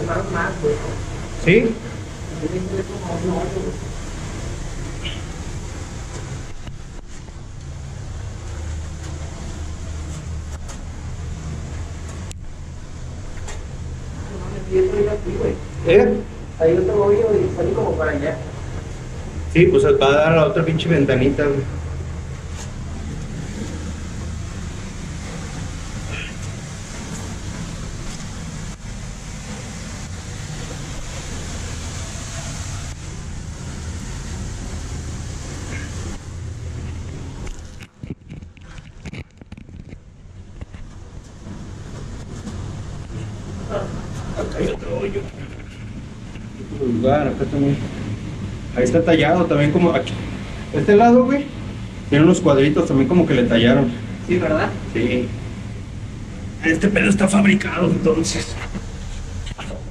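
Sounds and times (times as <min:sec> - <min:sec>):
waterfall rumble: 0:00.0 - 0:59.9.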